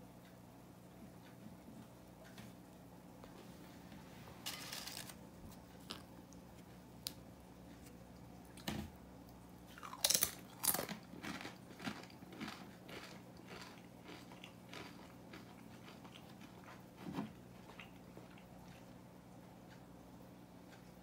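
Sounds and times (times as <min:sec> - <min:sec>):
tortilla chips crunching: 0:09.7 - 0:16.8.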